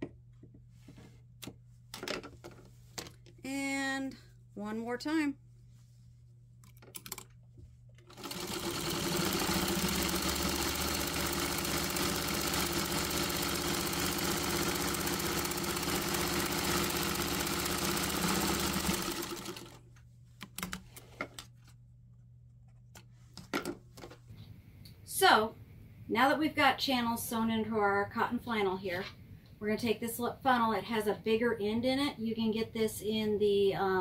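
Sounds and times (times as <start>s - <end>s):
sewing machine stitching: 8.1s - 19.8s.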